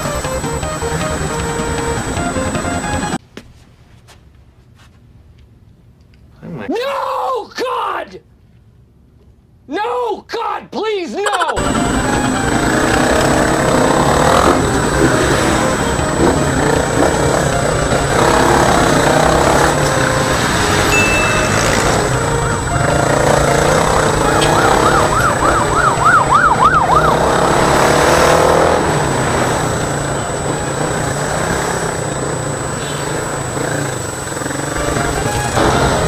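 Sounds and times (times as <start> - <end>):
motorcycle engine running: 0.0 - 3.2, 11.6 - 36.0
traffic noise: 0.0 - 3.2, 11.6 - 36.0
warbling siren yelping: 0.0 - 3.2, 11.4 - 36.0.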